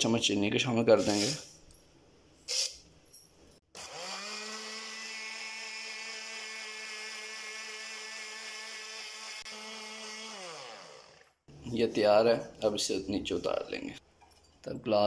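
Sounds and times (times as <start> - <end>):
electric blender motor whining: 3.7 - 11.5.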